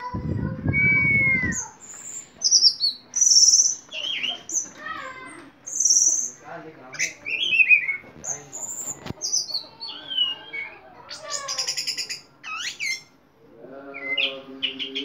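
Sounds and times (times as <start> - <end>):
thrush singing: 12.9 - 15.0.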